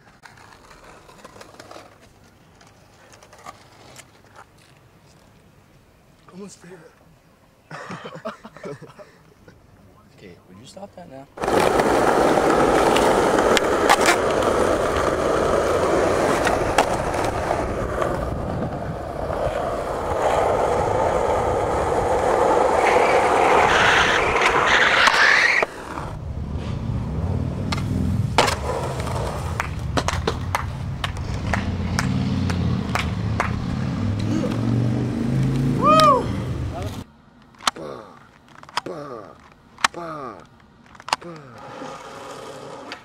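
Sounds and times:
skateboard wheels on asphalt: 0:00.0 - 0:06.4, 0:11.3 - 0:37.1, 0:40.6 - 0:43.0
skateboard clacks: 0:11.4 - 0:26.1, 0:27.7 - 0:34.6.

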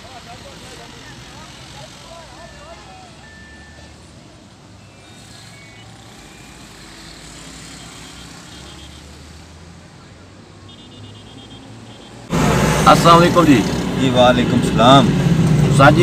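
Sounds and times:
truck engine idling: 0:00.0 - 0:07.0
rapid high beeps: 0:02.1 - 0:04.0, 0:04.8 - 0:09.0, 0:10.8 - 0:12.2.

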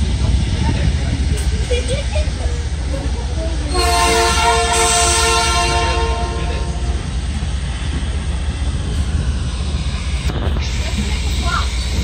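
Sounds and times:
train rumbling: 0:00.0 - 0:12.0
locomotive air horn: 0:03.7 - 0:07.0.

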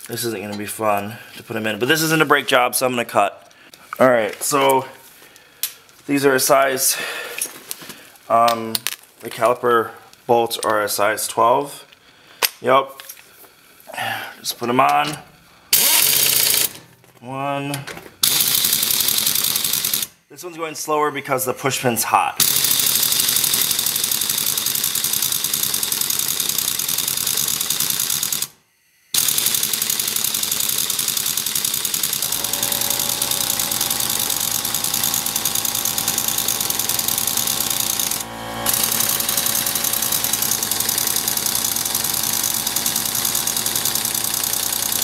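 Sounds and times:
air impact wrench hammering: 0:22.4 - 0:26.3, 0:29.1 - 0:45.0
steady whine: 0:32.2 - 0:44.9.

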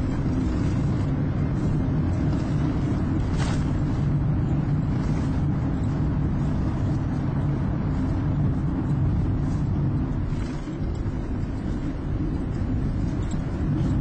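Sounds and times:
car road and engine rumble: 0:00.0 - 0:14.0.

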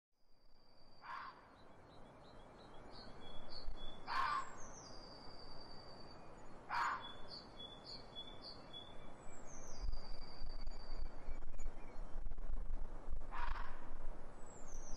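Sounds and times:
short harsh bird sounds: 0:06.7 - 0:07.2.

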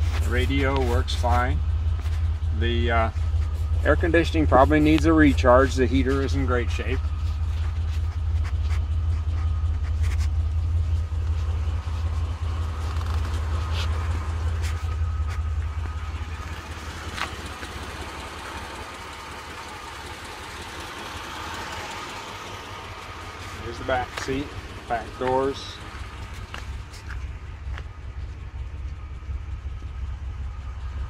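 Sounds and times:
car engine idling: 0:00.0 - 0:31.0.

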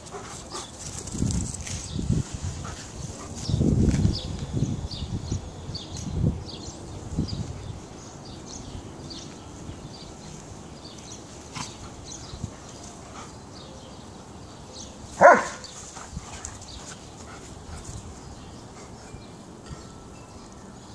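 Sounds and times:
dogs playing rough: 0:11.0 - 0:13.7
sharp dog bark: 0:15.2 - 0:15.6.

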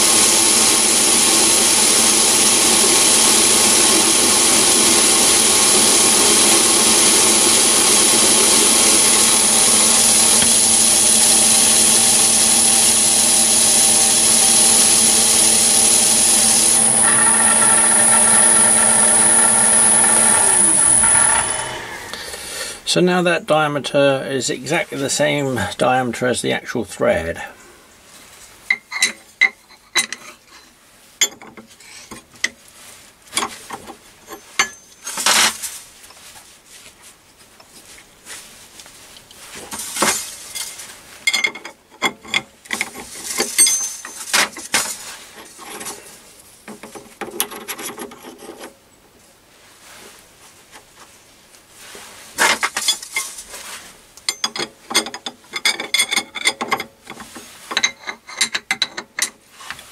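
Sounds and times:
metal tooling clinking: 0:43.4 - 0:44.2, 0:54.3 - 0:56.8
spanner on metal nut: 0:54.3 - 0:59.4.

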